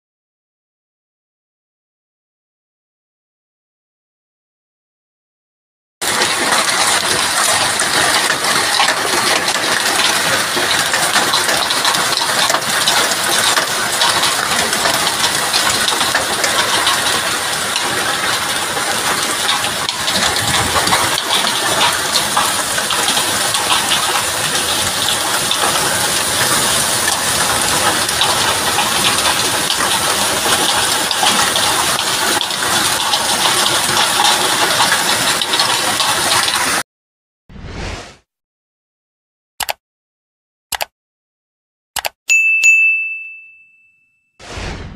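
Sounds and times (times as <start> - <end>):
heavy hail clattering: 6.0 - 36.8
strong wind: 20.0 - 21.3.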